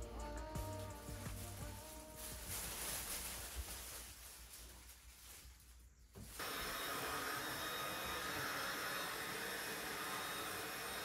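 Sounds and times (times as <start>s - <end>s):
handheld vacuum cleaner whine: 6.4s - 11.0s.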